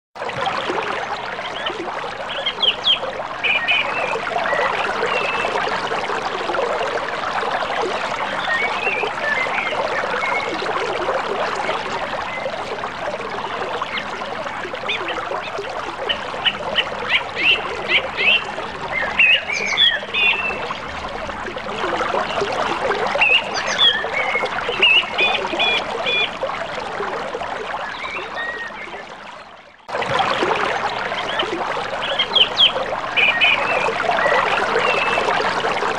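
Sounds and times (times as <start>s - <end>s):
river water flowing: 0.2s - 35.9s
birds chirping: 14.9s - 20.7s, 23.2s - 26.3s, 31.2s - 35.2s.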